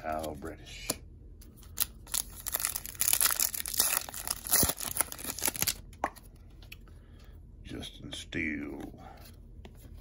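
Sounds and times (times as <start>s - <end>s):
card pack wrapper tearing and crinkling: 1.6s - 6.0s.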